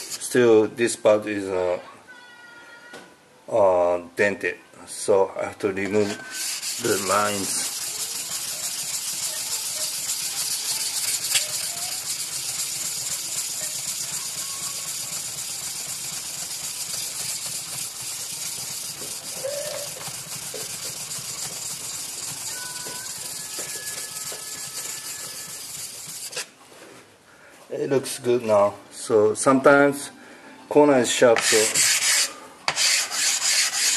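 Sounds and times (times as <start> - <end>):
stone grinding on stone: 6.0 - 12.2, 31.4 - 33.9.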